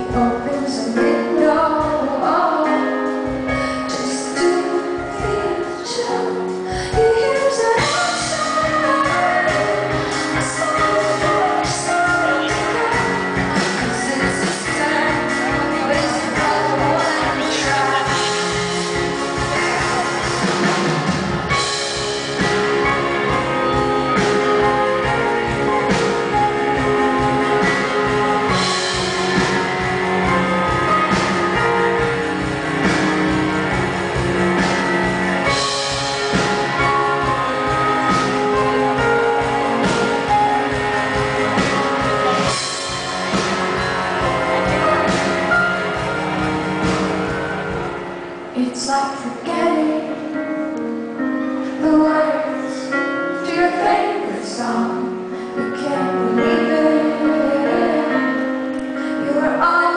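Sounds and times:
woman singing: 0:00.0 - 0:20.5, 0:48.6 - 0:50.8, 0:51.6 - 0:59.9
piano chords: 0:00.0 - 0:59.9.

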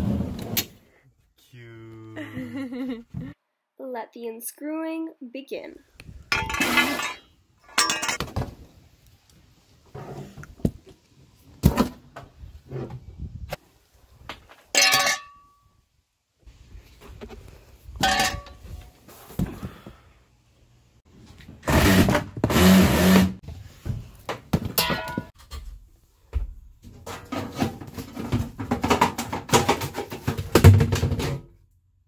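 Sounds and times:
cabinet panels knocking and clattering: 0:27.3 - 0:31.4.

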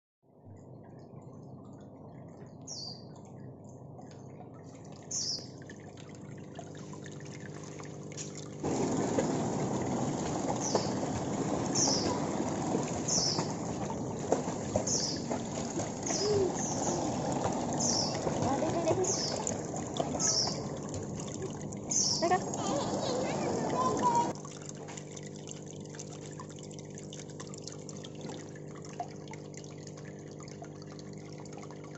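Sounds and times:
pool water splashing: 0:03.5 - 0:31.9
bird chirping: 0:05.1 - 0:05.5, 0:13.0 - 0:13.6, 0:14.8 - 0:15.4, 0:17.8 - 0:20.8, 0:21.9 - 0:22.4.

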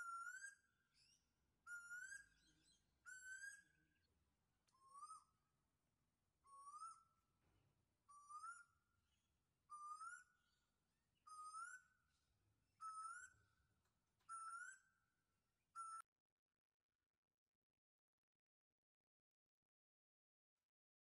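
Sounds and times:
parrot rising whistle: 0:12.8 - 0:13.4.

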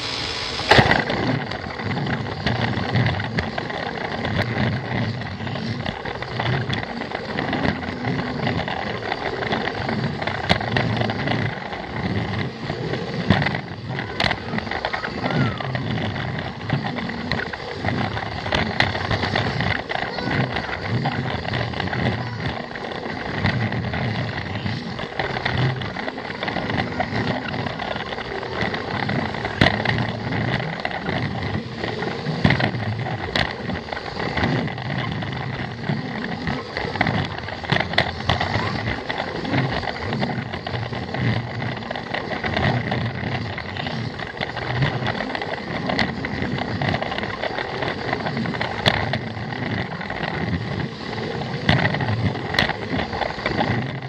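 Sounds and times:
toy train motor whirring: 0:00.0 - 0:54.0
wheels rattling on plastic track: 0:00.0 - 0:54.0.

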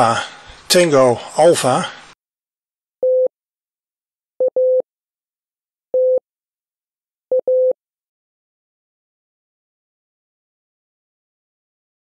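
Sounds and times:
morse code beeps: 0:03.0 - 0:03.3, 0:04.4 - 0:04.8, 0:06.0 - 0:06.2, 0:07.3 - 0:07.8.

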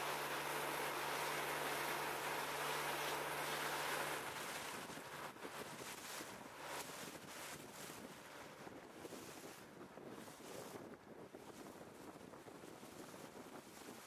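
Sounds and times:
low engine hum: 0:00.0 - 0:07.5
water rushing past hull: 0:00.0 - 0:09.6
wind buffeting microphone: 0:04.2 - 0:14.0.

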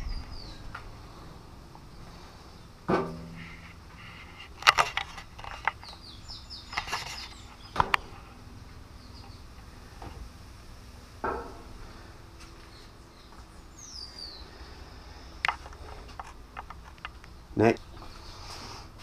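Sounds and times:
sharp clicks and knocks: 0:04.5 - 0:06.1, 0:06.7 - 0:08.1.

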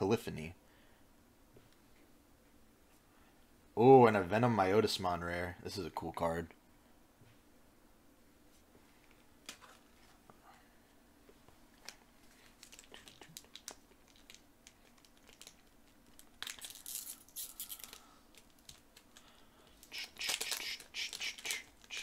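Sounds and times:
cards being handled: 0:11.8 - 0:22.0
foil wrapper tearing and crinkling: 0:12.5 - 0:22.0.

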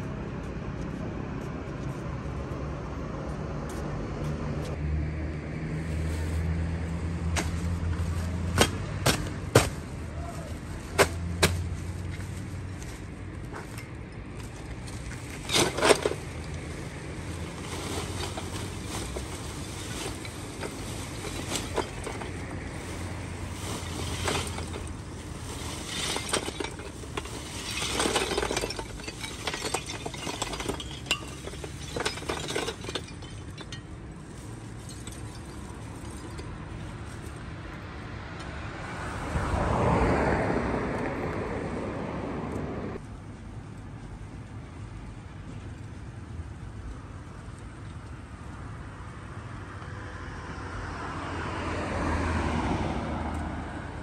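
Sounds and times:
low street rumble: 0:00.0 - 0:54.0
charcoal clattering into metal pan: 0:15.4 - 0:16.7, 0:17.3 - 0:33.8.

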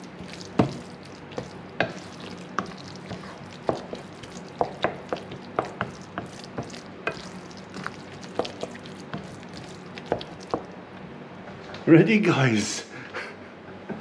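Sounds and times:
wooden spoon scraping a pan: 0:00.0 - 0:10.6.

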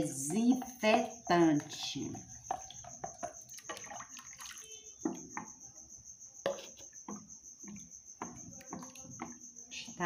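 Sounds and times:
cricket trilling: 0:00.0 - 0:10.0
liquid splashing and dripping: 0:02.5 - 0:05.2.

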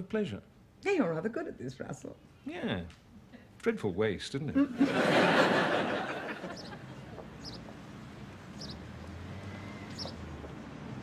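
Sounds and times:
outdoor street ambience: 0:00.0 - 0:11.0
studio audience laughing: 0:04.6 - 0:07.0
bird chirping: 0:06.4 - 0:10.5.

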